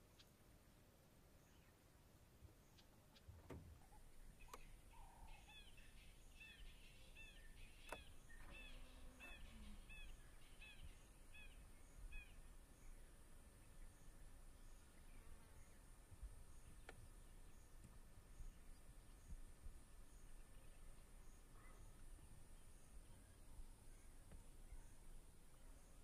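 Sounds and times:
outdoor background noise: 0:00.0 - 0:26.0.

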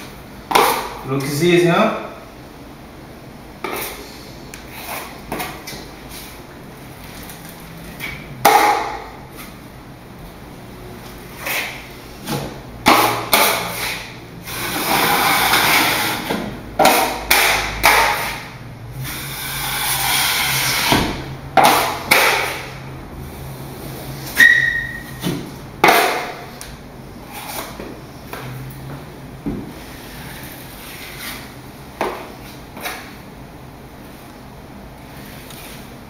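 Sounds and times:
taping knife scraping mud pan: 0:04.7 - 0:06.3, 0:11.4 - 0:11.9, 0:13.0 - 0:22.7, 0:27.3 - 0:27.8, 0:29.8 - 0:31.5
knife smoothing compound on drywall: 0:04.7 - 0:06.4, 0:11.3 - 0:22.8, 0:27.3 - 0:27.8, 0:29.8 - 0:31.6, 0:35.1 - 0:35.9.

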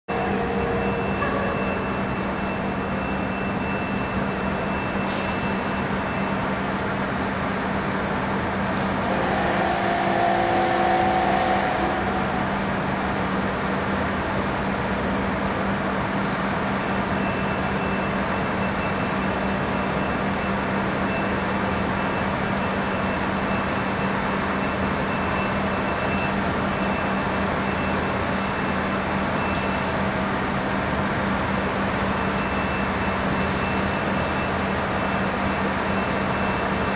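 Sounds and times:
loud air hiss: 0:08.8 - 0:12.9.

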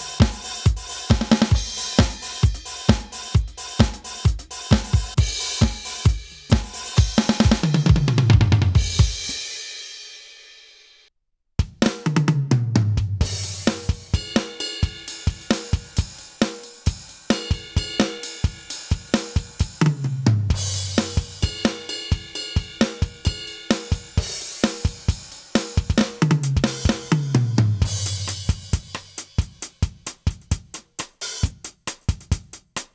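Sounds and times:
electronic drum groove: 0:00.0 - 0:09.6, 0:11.6 - 0:32.9
tom fill: 0:19.2 - 0:23.1.

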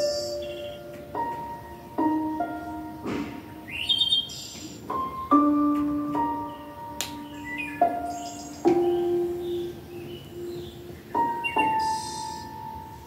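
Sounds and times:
slow piano notes: 0:00.0 - 0:13.0.

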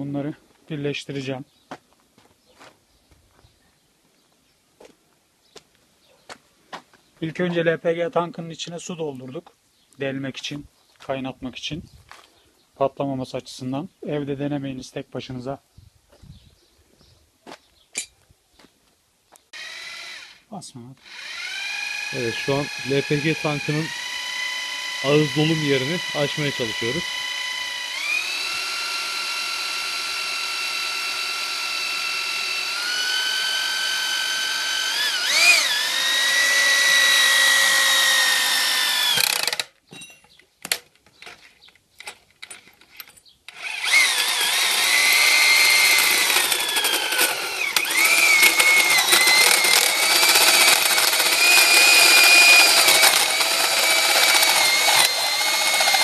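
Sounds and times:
electric drill whining into steel: 0:19.5 - 0:39.8, 0:43.5 - 0:56.0.

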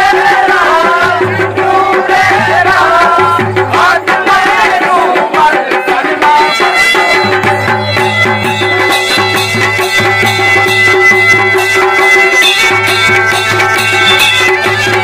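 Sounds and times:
drums keeping a steady beat: 0:00.0 - 0:15.0
reedy bagpipe tones: 0:06.4 - 0:15.0.

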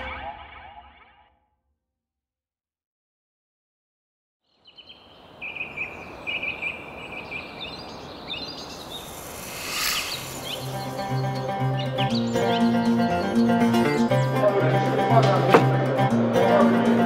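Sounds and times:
birds chirping and singing: 0:04.5 - 0:15.8
outdoor hiss: 0:05.8 - 0:11.4.

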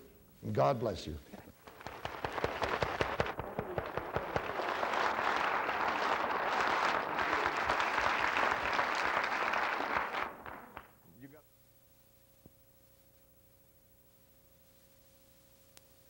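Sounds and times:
audience applauding: 0:01.6 - 0:11.0.

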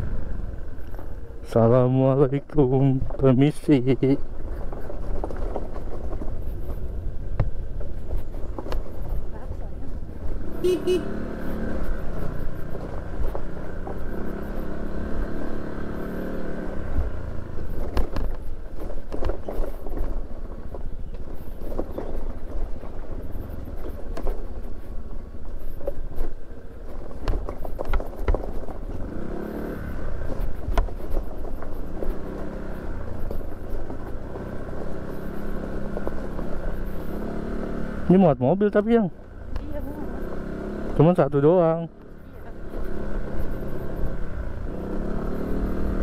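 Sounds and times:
knocks and rattles from bumps: 0:03.0 - 0:09.6, 0:17.0 - 0:29.5, 0:30.2 - 0:37.4
motorcycle engine running: 0:03.6 - 0:46.0.

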